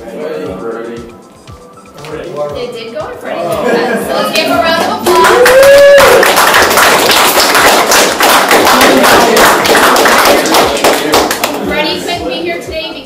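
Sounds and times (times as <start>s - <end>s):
audience applauding: 4.9s - 11.6s.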